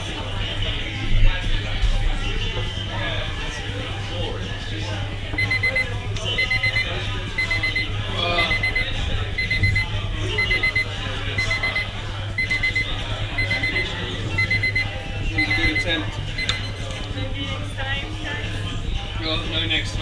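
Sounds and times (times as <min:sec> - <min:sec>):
timer beeping: 0:05.4 - 0:16.8.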